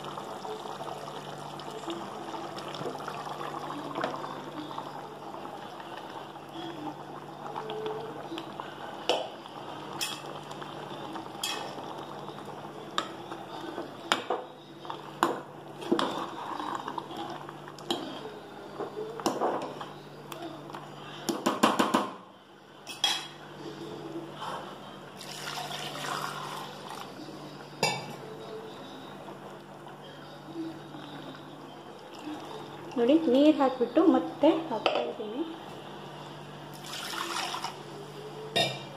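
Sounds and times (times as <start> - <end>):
spoon clinking and scraping pot: 11.4 - 11.7.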